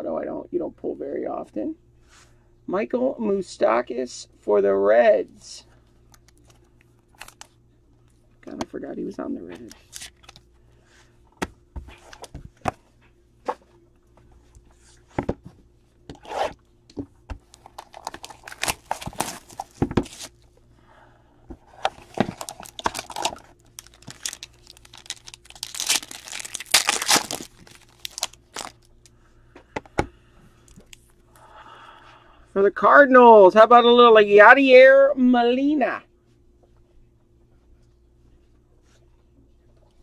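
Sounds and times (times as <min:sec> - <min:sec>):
wrapper tearing and crinkling: 0:17.5 - 0:20.3, 0:22.0 - 0:29.0.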